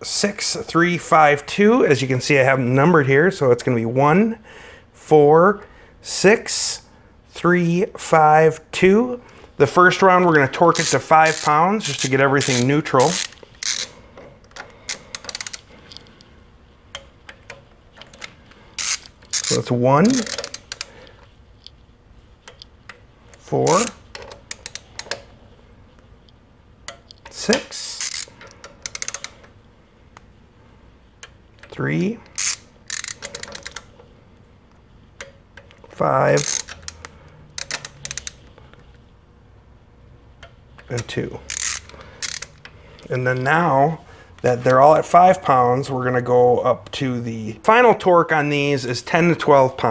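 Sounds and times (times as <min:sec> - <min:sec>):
ratchet clicks: 0:10.7 - 0:16.2, 0:16.9 - 0:21.0, 0:22.4 - 0:25.3, 0:26.9 - 0:29.5, 0:32.3 - 0:34.0, 0:35.2 - 0:38.5, 0:41.5 - 0:43.1.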